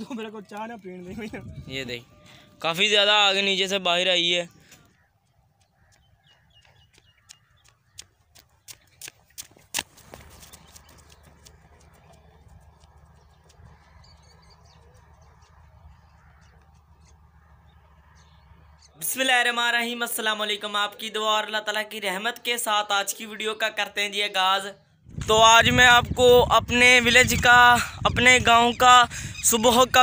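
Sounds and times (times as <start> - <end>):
running footsteps on dirt road: 4.5 - 19.0.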